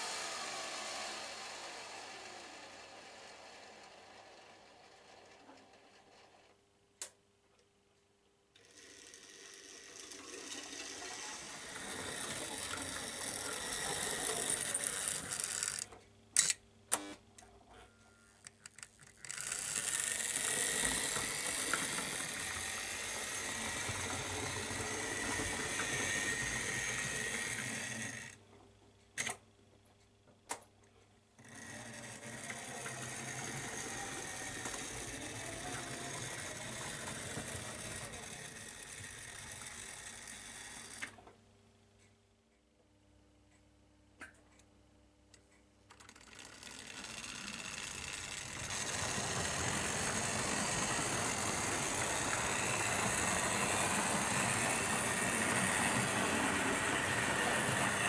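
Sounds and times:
small electric motor whirring: 0:00.0 - 0:05.4, 0:08.6 - 0:15.9, 0:18.8 - 0:28.4, 0:31.4 - 0:41.1, 0:46.0 - 0:58.0
wheels rolling on rails: 0:00.0 - 0:06.6, 0:08.6 - 0:15.9, 0:18.4 - 0:28.4, 0:31.4 - 0:41.2, 0:45.9 - 0:58.0.

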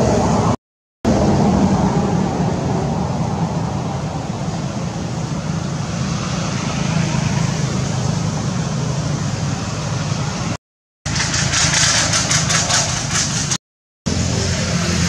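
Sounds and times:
steady low rumble: 0:00.0 - 0:06.8
hiss: 0:11.1 - 0:15.0.

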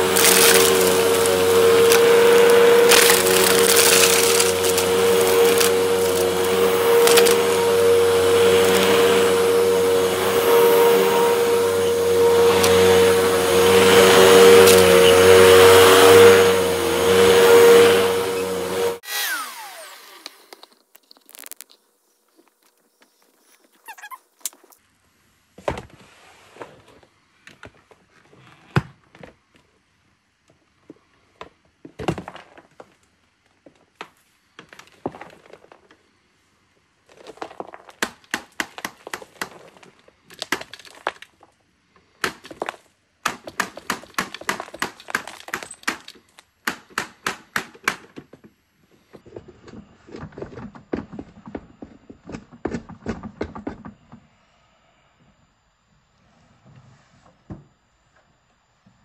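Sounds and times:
vacuum cleaner running: 0:00.0 - 0:20.6
vacuum motor winding down: 0:00.0 - 0:20.7.

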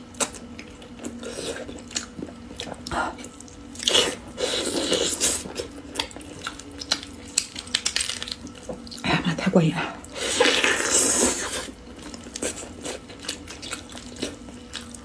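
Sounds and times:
wet chewing mouth sounds: 0:00.2 - 0:09.0, 0:10.0 - 0:15.0.

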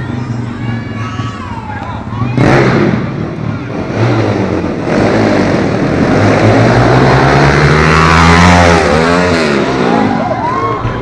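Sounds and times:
pit bike engine revving: 0:02.2 - 0:10.3.

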